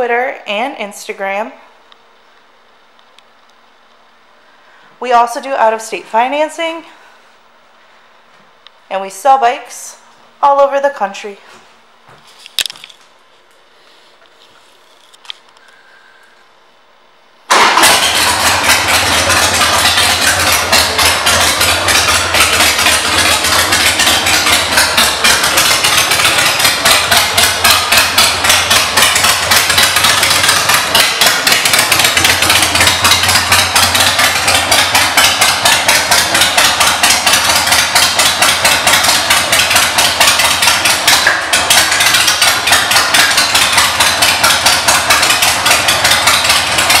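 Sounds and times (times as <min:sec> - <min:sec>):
motorcycle engine idling: 0:17.5 - 0:47.0.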